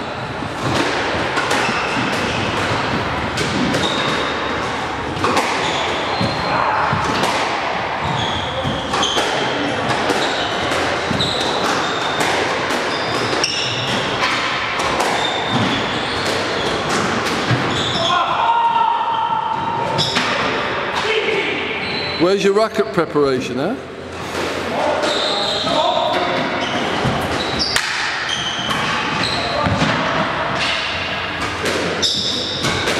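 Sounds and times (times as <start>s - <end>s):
shoes squeaking on wooden floor: 3.6s - 7.0s, 8.0s - 14.2s, 15.0s - 18.1s, 24.9s - 29.6s, 32.0s - 32.8s.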